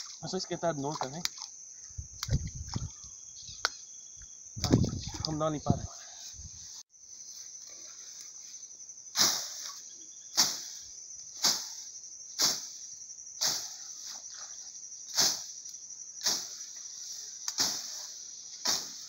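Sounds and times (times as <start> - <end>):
crickets chirring: 0.0 - 19.0
blade swishing through grass: 9.2 - 9.8, 10.4 - 12.8, 13.4 - 15.6, 16.2 - 19.0.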